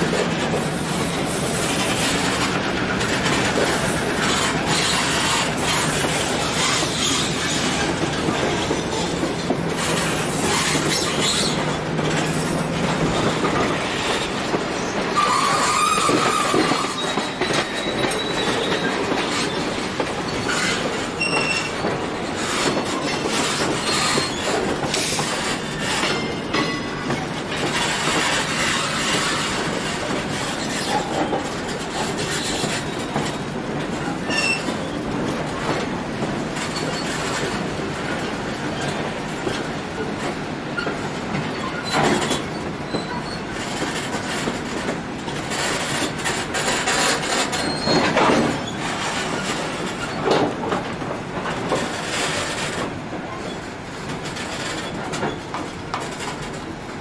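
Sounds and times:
train wheels clicking over rail joints: 0:00.0 - 0:57.0
metallic wheel squeal: 0:15.2 - 0:19.6, 0:20.3 - 0:21.8, 0:34.3 - 0:34.7.

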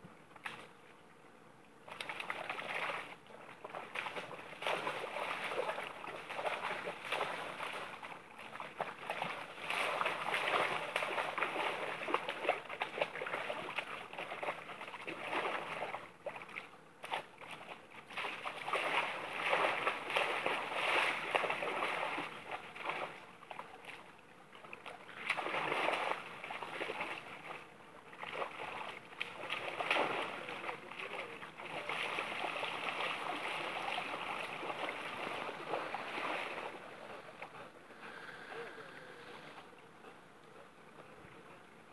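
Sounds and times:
river water splashing and burbling: 0:01.8 - 0:41.1.

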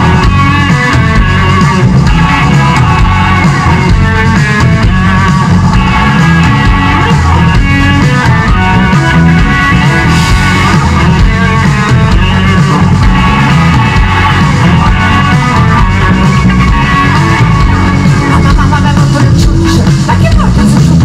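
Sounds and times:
bass guitar: 0:00.0 - 0:21.0
drums: 0:00.0 - 0:21.0
electric guitar: 0:00.0 - 0:21.0
keyboards: 0:00.0 - 0:21.0.

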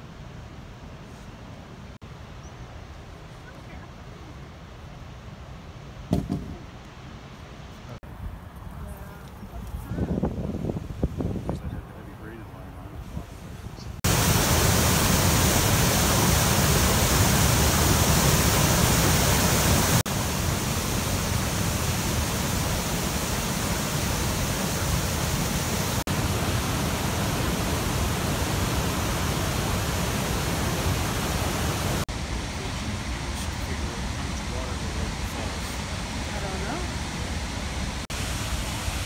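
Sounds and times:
rapids and waterfall rushing: 0:14.0 - 0:39.0.

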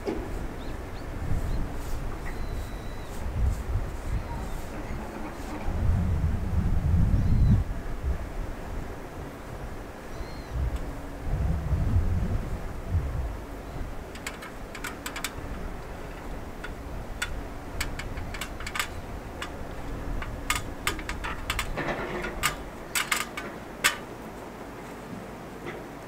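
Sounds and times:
clicks and knocks of aluminium ladder: 0:14.0 - 0:24.4.

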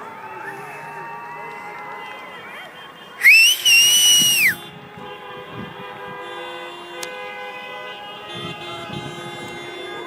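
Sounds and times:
person whistling loudly: 0:03.2 - 0:04.6.

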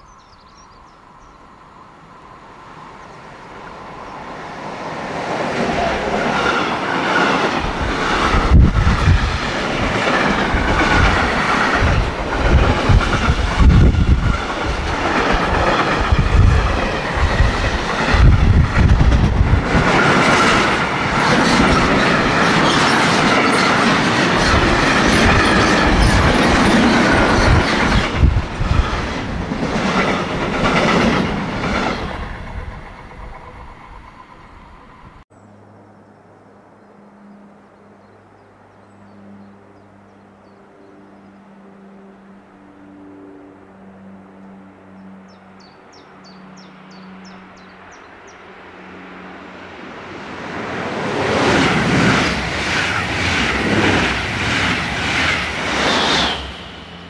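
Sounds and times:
train wheels rumbling on rails: 0:03.0 - 0:35.2, 0:48.8 - 0:57.0.

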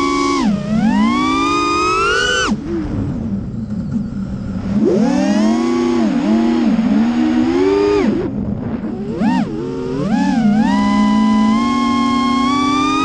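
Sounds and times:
drone motors whining: 0:00.0 - 0:13.0
wind on microphone: 0:02.4 - 0:11.0.

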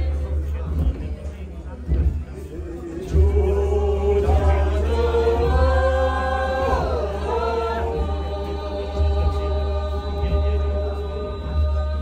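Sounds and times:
steady deep bass: 0:00.0 - 0:12.0
voices chanting long notes: 0:02.9 - 0:12.0.

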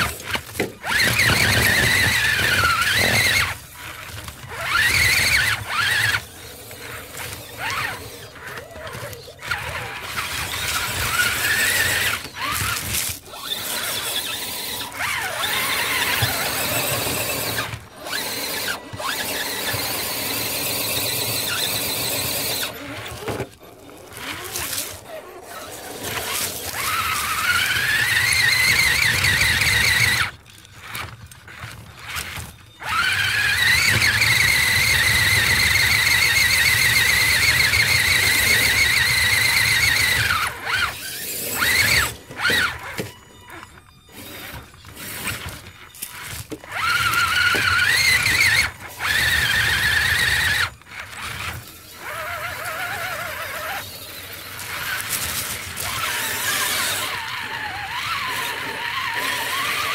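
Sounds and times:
electric motor and gears whining: 0:00.0 - 0:59.9.

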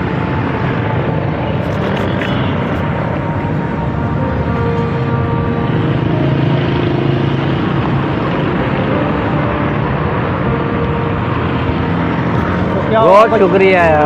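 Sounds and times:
road traffic hum: 0:00.0 - 0:14.0.

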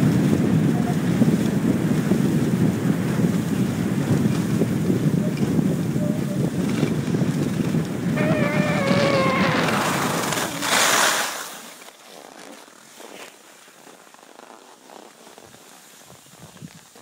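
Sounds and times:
wind buffeting microphone: 0:00.0 - 0:11.0
skis hissing over snow: 0:07.2 - 0:17.0.

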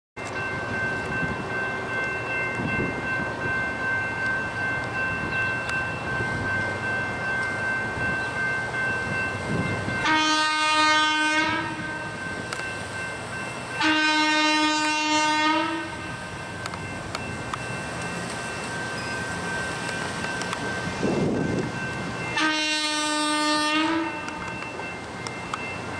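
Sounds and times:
low reedy truck horn blasts: 0:10.0 - 0:12.2, 0:13.8 - 0:16.0, 0:22.4 - 0:24.4.

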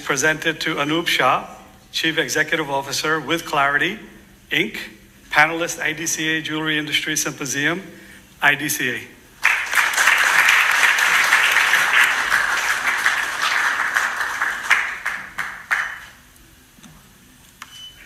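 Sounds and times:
audience applauding: 0:09.4 - 0:16.3.

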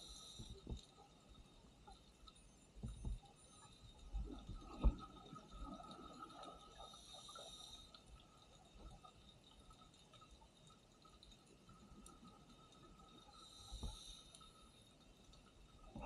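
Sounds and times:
thin hiss: 0:00.0 - 0:01.1, 0:13.3 - 0:14.9.

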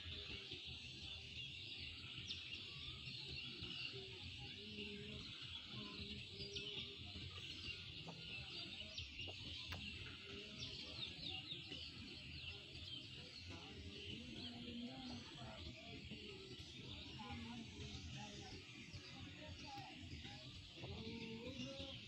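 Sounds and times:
birds chirping in chorus: 0:00.0 - 0:22.0.

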